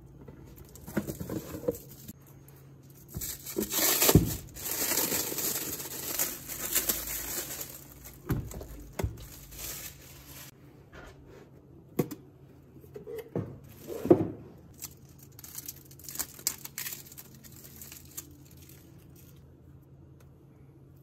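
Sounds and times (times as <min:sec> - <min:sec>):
plastic film crinkling: 0:02.9 - 0:10.6, 0:14.7 - 0:19.4.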